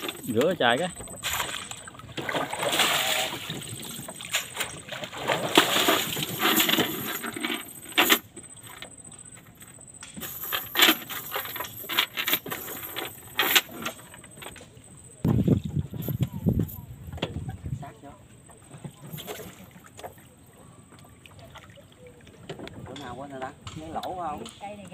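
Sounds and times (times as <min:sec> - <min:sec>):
net splashing in water: 0:01.2 - 0:06.4
net weights clinking on wood: 0:10.2 - 0:14.6.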